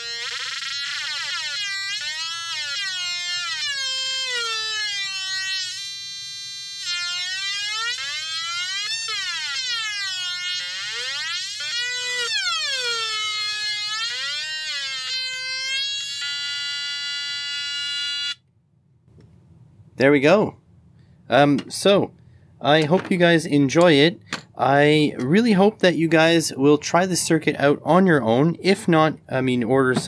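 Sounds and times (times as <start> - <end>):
buzzy square-wave synth tone: 0.0 - 18.4.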